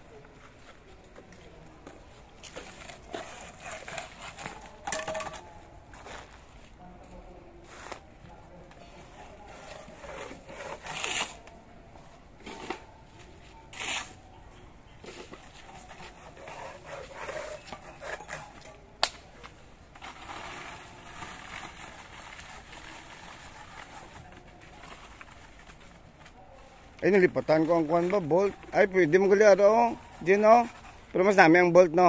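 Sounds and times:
trowel scraping wet cement: 2.5 - 6.4, 9.5 - 11.5, 13.7 - 14.2, 15.1 - 18.7, 19.9 - 25.8, 27.2 - 31.6.

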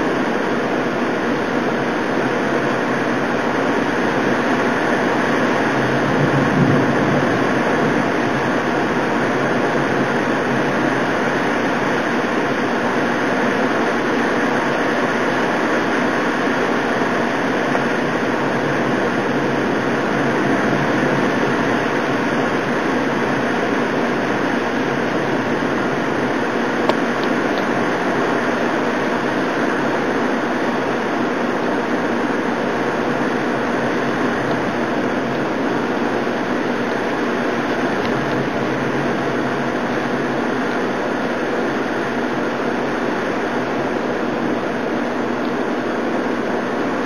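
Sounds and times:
heavy rain rushing: 0.0 - 47.0.

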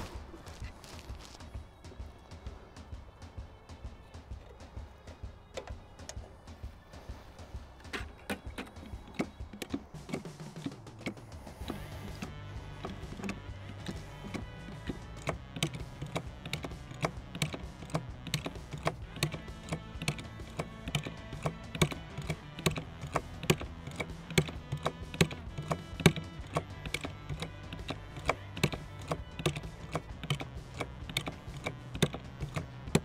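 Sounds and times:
background music: 0.0 - 33.0
hand oil pump clicking: 5.5 - 6.3, 7.8 - 33.0.

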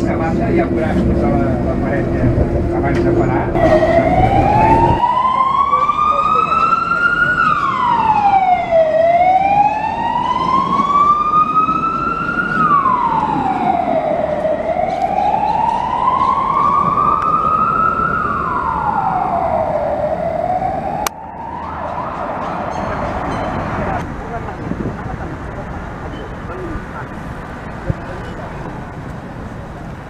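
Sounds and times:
wailing siren: 3.6 - 24.0.

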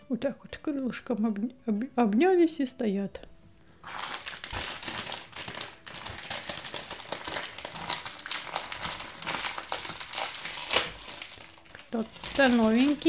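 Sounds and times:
foil packet crinkling and tearing: 3.8 - 13.0.

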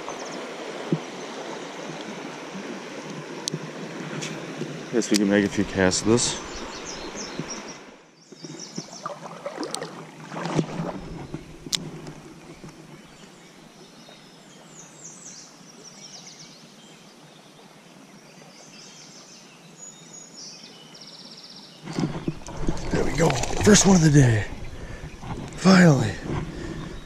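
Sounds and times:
low outdoor hiss: 11.4 - 22.0.

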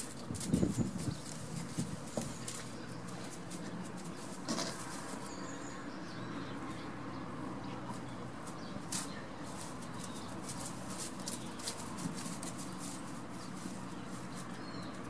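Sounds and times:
hoof steps: 0.0 - 5.4
rustling on straw: 0.0 - 6.8, 7.8 - 15.0
steady background hum: 0.0 - 15.0.

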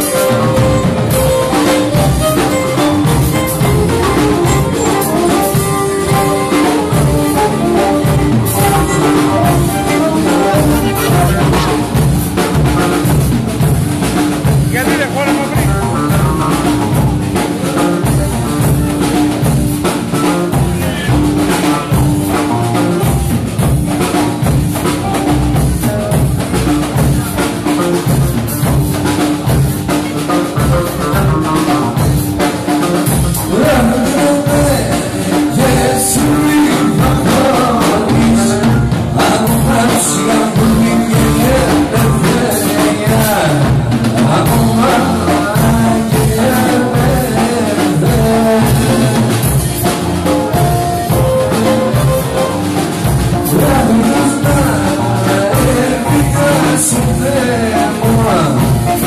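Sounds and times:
lyra melody: 0.0 - 12.7
keyboard: 0.0 - 59.0
steady drum beat: 0.0 - 59.0.

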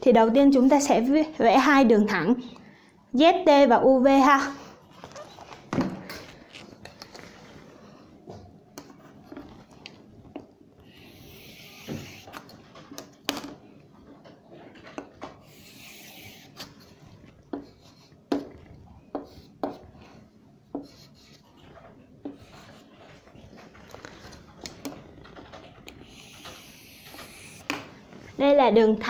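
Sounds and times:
pen scratching on paper: 10.8 - 12.3, 15.5 - 16.9, 20.8 - 23.1, 26.0 - 27.6.

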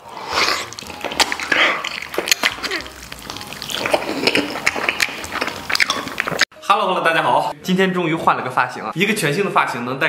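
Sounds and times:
man chewing meat: 0.0 - 6.5.

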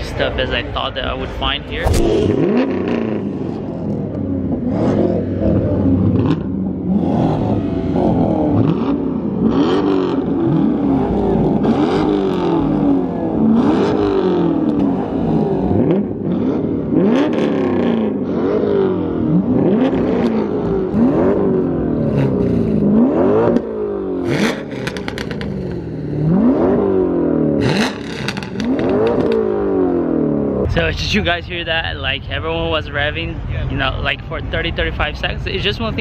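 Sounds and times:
car engines revving: 0.0 - 36.0.

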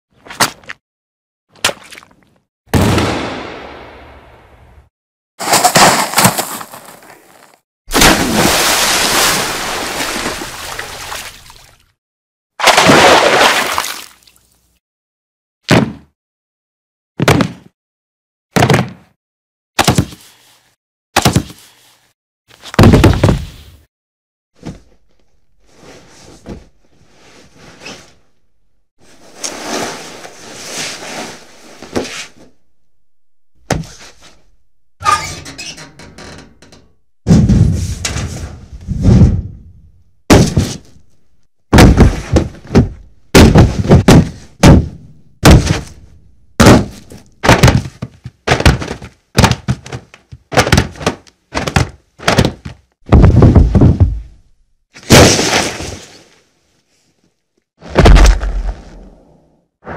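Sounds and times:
punch impacts: 40.3 - 40.8, 41.8 - 54.2, 57.9 - 59.0.

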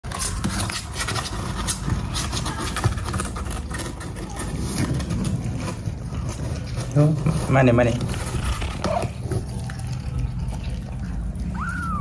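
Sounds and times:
claws scratching cardboard box: 0.1 - 9.6.

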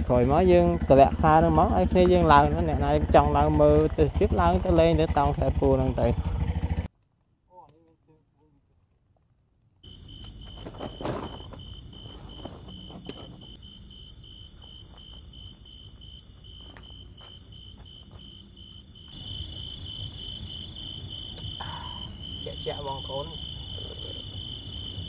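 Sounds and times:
insects chirping in pulses: 7.6 - 25.0
high insect trilling: 9.8 - 25.0.

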